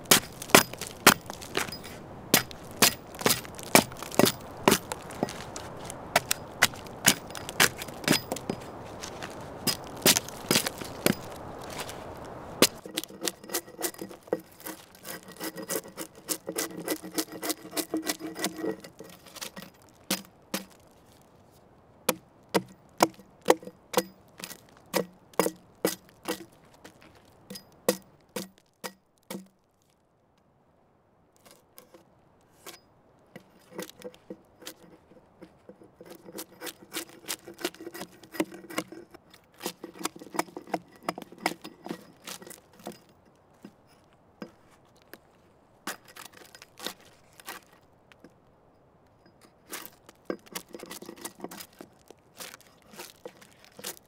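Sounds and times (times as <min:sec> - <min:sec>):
hatchet chopping into log: 0:22.1 - 0:26.5.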